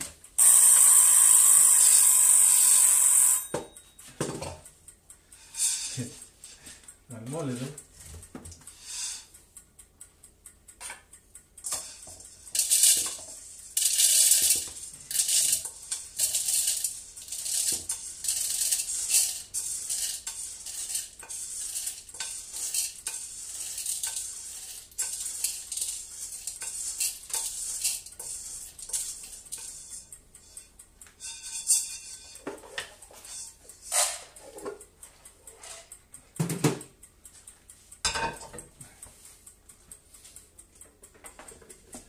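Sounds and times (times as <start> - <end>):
coffee beans rattling into grinder: 0.4 - 3.4, 12.5 - 29.7.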